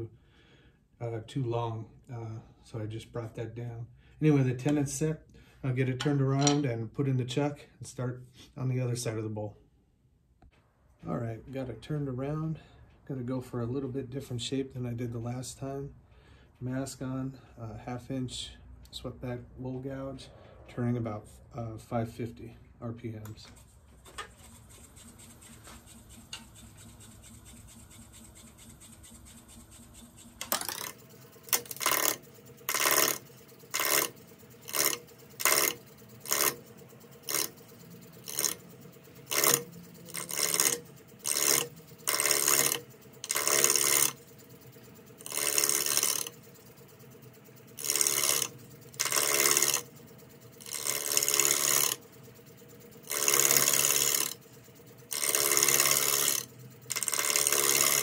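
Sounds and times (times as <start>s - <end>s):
wood lathe humming: 24.2s - 58.0s
gouge cutting wood: 24.4s - 44.2s, 45.2s - 46.4s, 47.7s - 49.9s, 50.6s - 52.0s, 53.0s - 54.4s, 55.1s - 58.0s.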